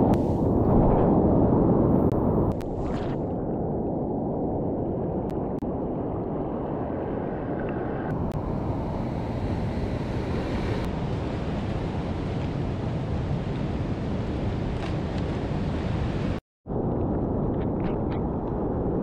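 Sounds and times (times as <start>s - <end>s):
wind on microphone: 0.0s - 19.0s.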